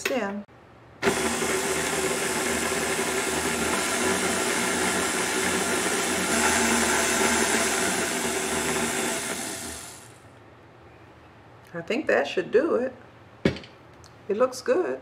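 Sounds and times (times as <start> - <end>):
stand mixer motor whirring: 1.0 - 10.2.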